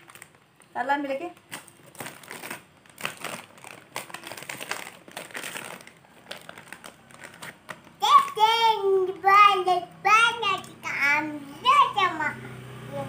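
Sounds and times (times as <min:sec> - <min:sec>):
plastic chip bag crinkling: 0:00.0 - 0:09.2.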